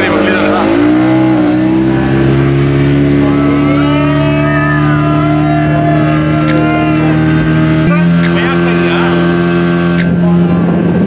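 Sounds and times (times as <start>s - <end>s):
motorboat engine running: 0.0s - 11.0s.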